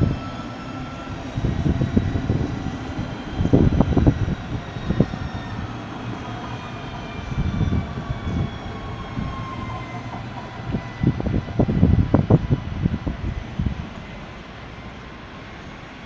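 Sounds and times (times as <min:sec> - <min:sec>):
wind rumble on microphone: 0:00.0 - 0:14.2
tram whine: 0:00.0 - 0:16.0.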